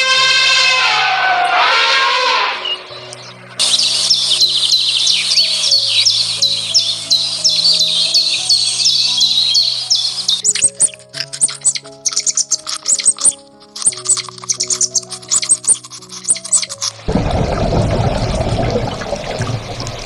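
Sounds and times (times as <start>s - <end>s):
birds chirping rapidly: 0.0s - 20.0s
soft background music: 0.0s - 20.0s
sharp plucked clicks: 10.3s - 17.0s.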